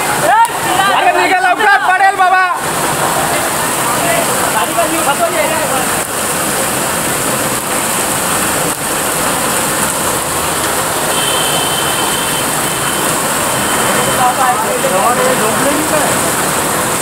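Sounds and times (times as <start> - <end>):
heavy rain: 0.0 - 17.0
water splashing on corrugated roof: 0.0 - 17.0.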